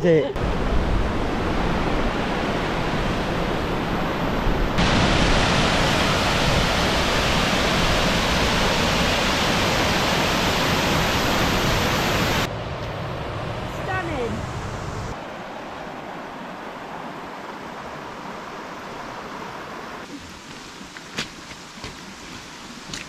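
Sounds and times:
rushing stream and waterfall: 0.0 - 23.0.

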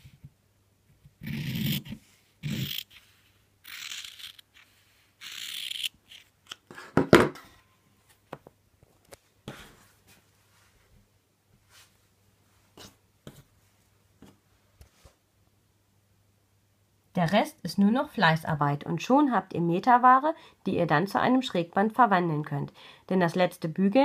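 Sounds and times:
scissors cutting cloth: 3.6 - 6.3.

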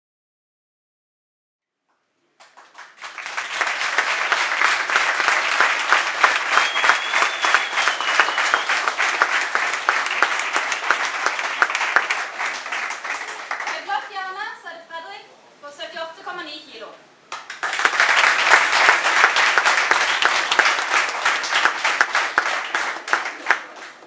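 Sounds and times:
crowd applauding: 2.4 - 14.2, 17.3 - 24.0
high whistle: 6.3 - 9.0.

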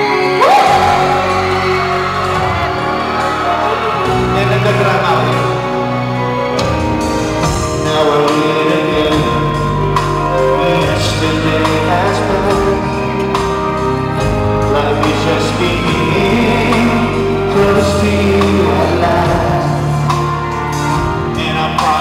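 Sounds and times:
pop ballad music over loudspeakers: 0.0 - 22.0
man singing into a microphone: 7.6 - 13.4, 14.2 - 22.0.

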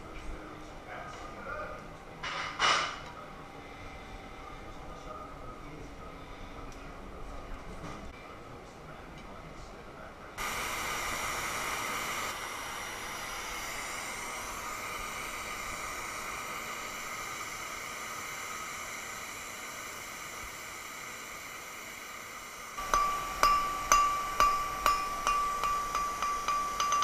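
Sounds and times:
gas flame hissing: 10.4 - 27.0.

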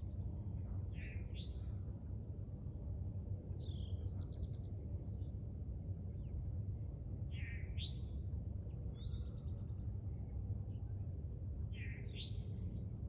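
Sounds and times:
songbirds singing: 11.8 - 12.9.

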